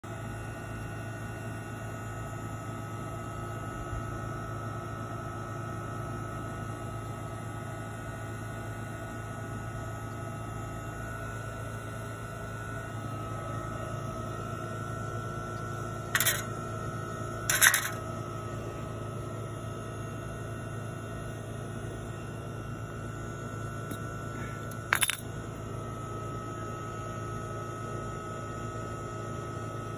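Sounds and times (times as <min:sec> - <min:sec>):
background hum with whine: 0:00.0 - 0:29.9
sharp clattering: 0:16.2 - 0:16.5, 0:17.5 - 0:18.0.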